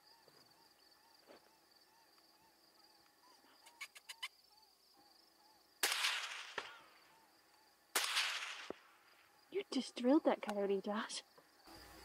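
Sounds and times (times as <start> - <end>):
short sharp crack: 5.8 - 6.8, 8.0 - 8.8
suppressed rifle shot echoing: 5.8 - 6.9, 7.9 - 8.9.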